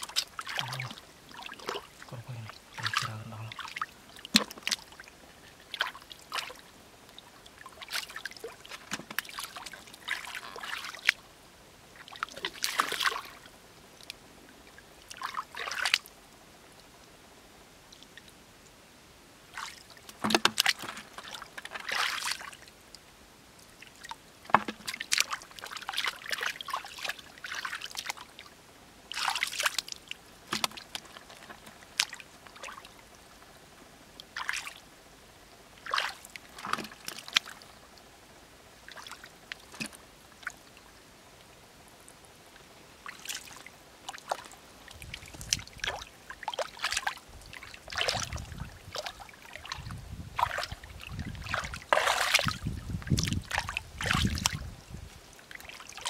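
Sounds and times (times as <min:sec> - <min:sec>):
hands splashing in muddy puddle: 0:50.4 - 0:54.6.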